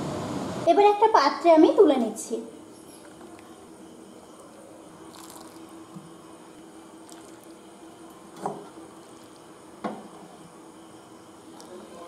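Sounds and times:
curry squishing and dripping: 5.1s - 5.7s, 7.0s - 7.6s, 8.4s - 9.6s.

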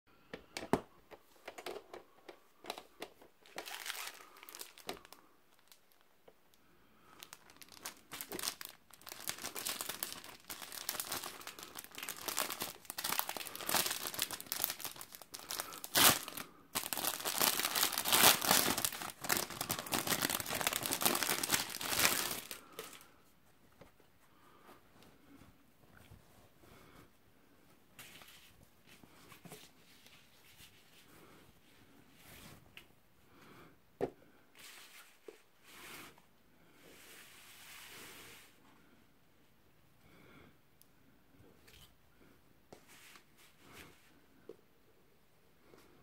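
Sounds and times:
plastic packaging crinkling: 3.4s - 6.1s, 7.2s - 23.1s.

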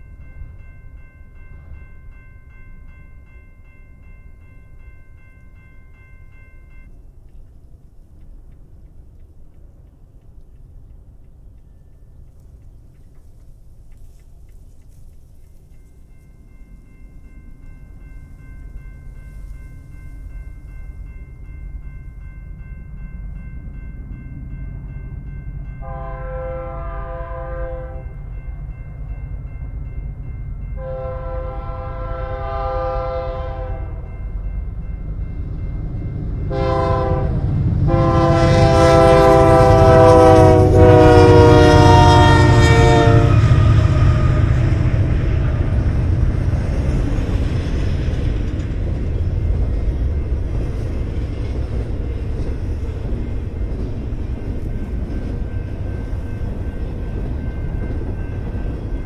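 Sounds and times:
crossing bell dinging: 0.0s - 7.3s, 15.0s - 59.0s
train rumble: 0.0s - 59.0s
locomotive air horn blasts: 25.8s - 28.2s, 30.8s - 34.1s, 36.5s - 44.5s.

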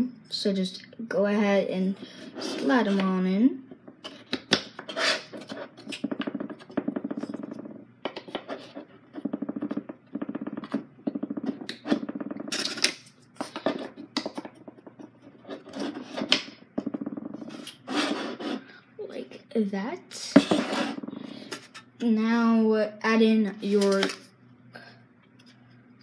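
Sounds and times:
rapid rasping: 3.8s - 18.8s.

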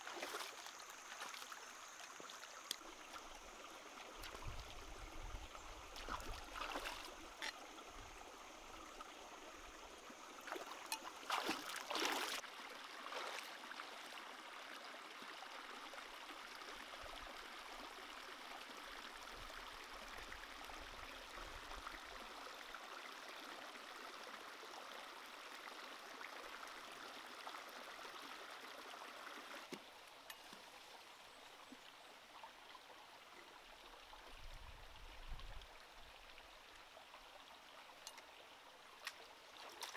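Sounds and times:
water splashes: 0.0s - 7.6s, 10.4s - 13.9s, 39.0s - 39.9s
stream flowing over stones: 0.0s - 39.9s.

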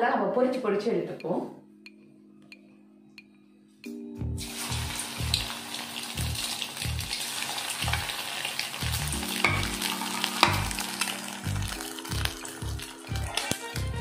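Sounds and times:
music with bass beat: 1.8s - 5.5s, 6.2s - 7.1s, 8.8s - 14.0s
food deep-frying in oil: 4.4s - 13.6s
oil crackles: 4.5s - 13.6s.

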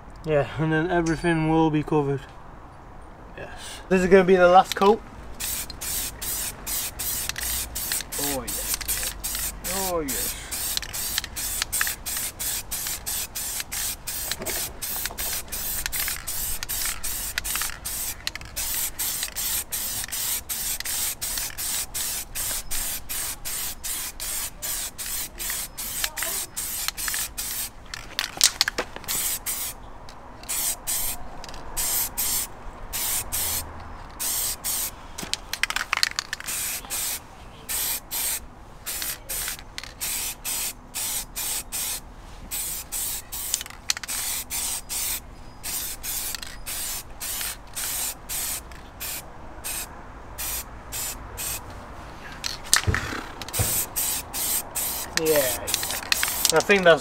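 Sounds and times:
aerosol spray paint hissing: 5.4s - 27.7s, 29.1s - 29.8s, 30.5s - 31.2s, 31.8s - 33.6s, 34.2s - 34.9s, 36.4s - 51.6s, 52.9s - 56.6s.

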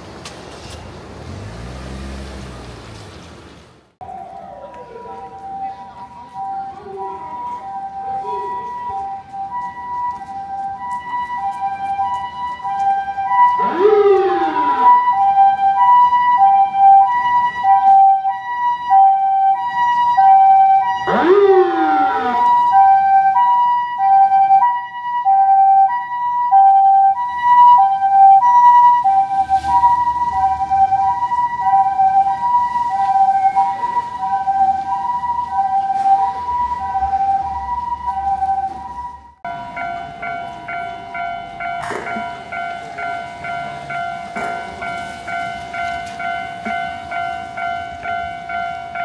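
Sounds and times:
level crossing two-tone bell: 39.5s - 49.0s.

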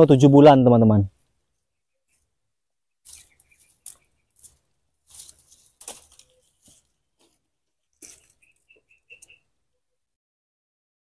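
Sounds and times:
soft high chirps: 3.0s - 5.3s, 8.0s - 9.6s
rustling and crackling: 3.0s - 9.4s.

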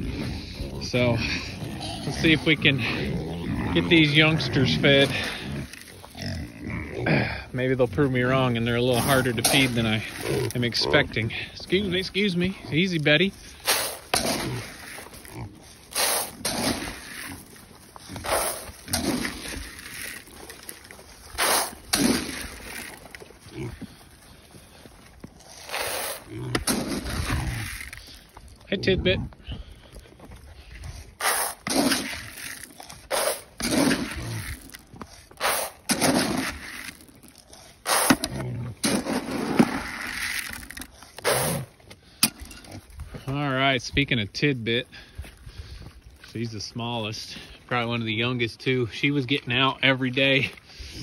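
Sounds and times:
footsteps crunching through dry leaves: 0.0s - 28.7s
pigs grunting: 0.0s - 43.4s.

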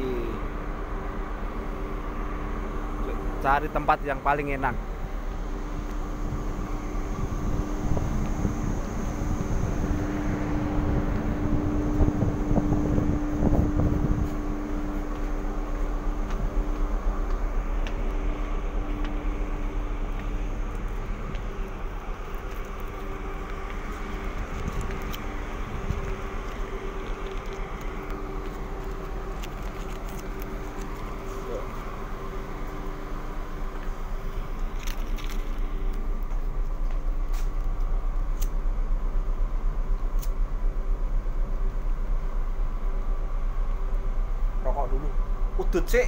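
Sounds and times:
faint steady hum: 0.0s - 46.0s
wind buffeting on microphone: 5.5s - 15.5s, 19.2s - 31.3s.

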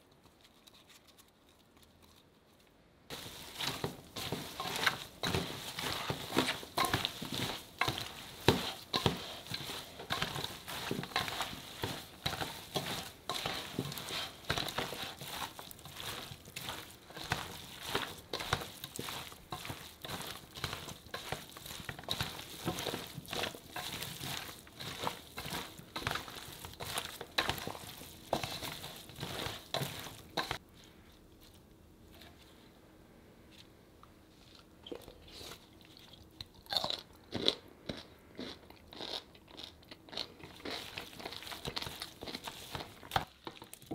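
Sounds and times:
food mixed in steel bowl: 3.1s - 32.6s, 40.1s - 43.9s.

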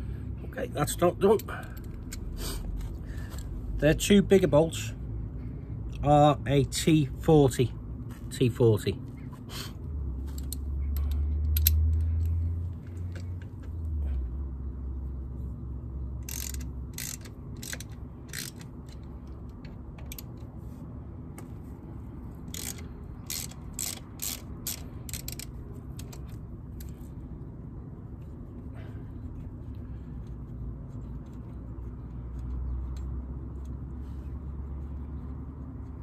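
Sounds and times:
ratchet wrench clicking: 10.3s - 12.4s, 16.2s - 20.4s, 22.5s - 26.9s.

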